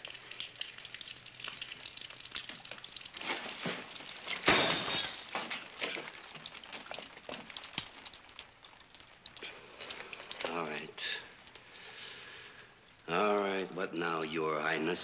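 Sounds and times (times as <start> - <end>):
glass shattering: 3.2 - 6.1
glass clinking and clattering: 3.3 - 6.1.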